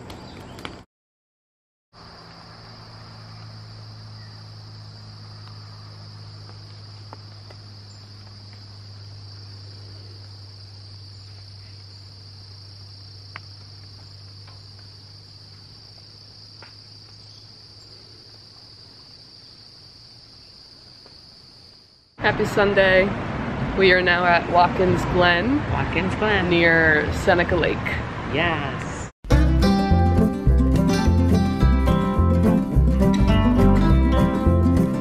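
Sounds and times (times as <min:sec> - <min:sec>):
insect chorus: 0:02.0 - 0:22.2.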